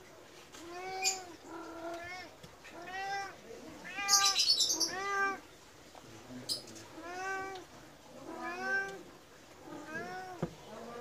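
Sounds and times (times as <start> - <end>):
cat meowing: 0.6 - 5.4, 7.0 - 9.1, 9.7 - 11.0.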